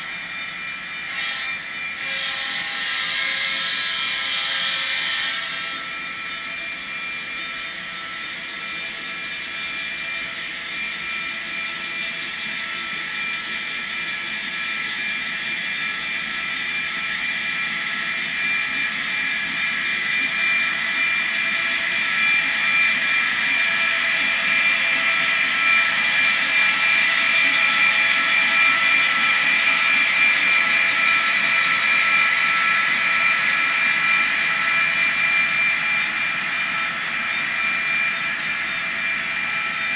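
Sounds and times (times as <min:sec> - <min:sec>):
model train motor whining: 0:00.0 - 0:39.9
train cars rolling on track: 0:01.0 - 0:05.9.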